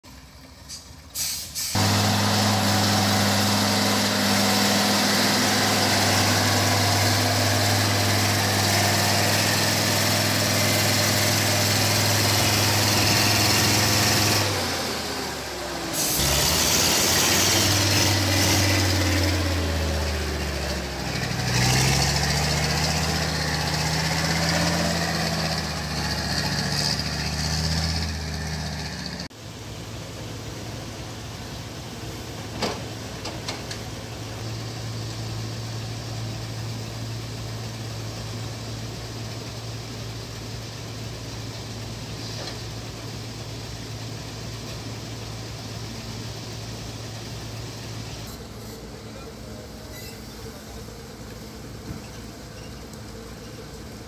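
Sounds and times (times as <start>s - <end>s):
truck engine revving under load: 0.7s - 29.3s.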